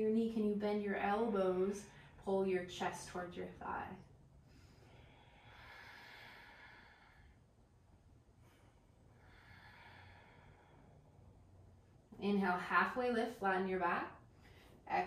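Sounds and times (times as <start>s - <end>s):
faint breathing: 4.3s - 7.7s, 8.3s - 11.6s, 14.2s - 14.9s.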